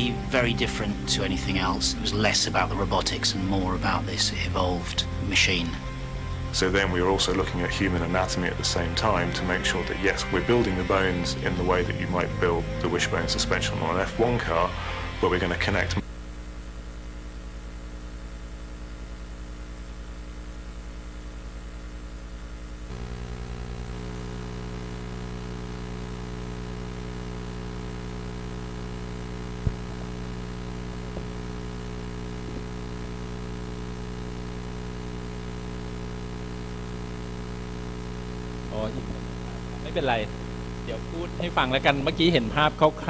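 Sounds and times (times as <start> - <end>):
electrical mains hum: 0.0 - 43.0.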